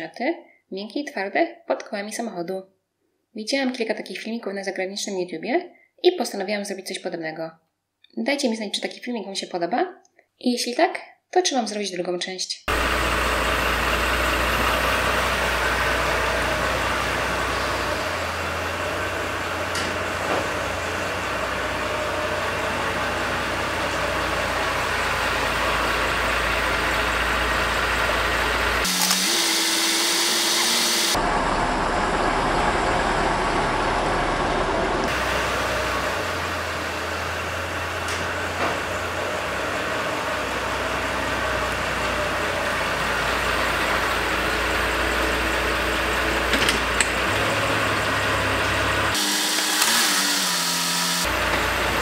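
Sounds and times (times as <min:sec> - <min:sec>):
car engine at low revs: 0:12.7 - 0:49.2.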